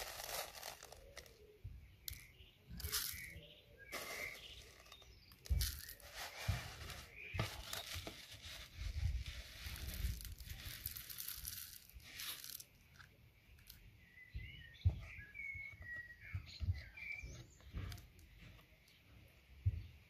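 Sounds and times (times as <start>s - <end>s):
metal pins clinking as poured: 0.0s - 1.3s, 9.8s - 12.7s
small bird chirping: 0.0s - 20.0s.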